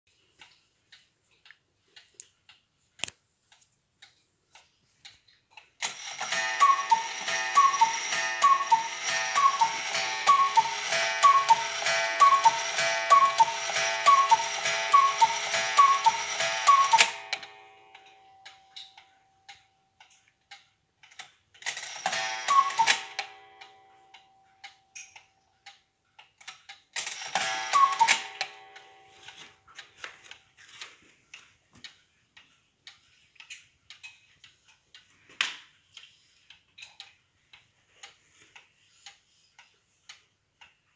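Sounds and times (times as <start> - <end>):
clock ticking: 0.1 - 40.9
cuckoo clock call: 5.8 - 20.2, 21.6 - 25.9, 27.0 - 30.4.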